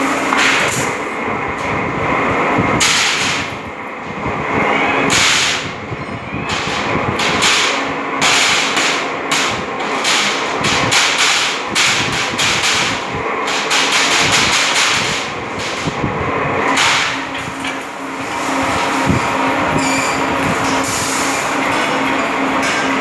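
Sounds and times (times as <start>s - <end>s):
machine rollers clattering metal strip: 5.1s - 5.8s, 6.5s - 16.0s, 16.7s - 23.0s.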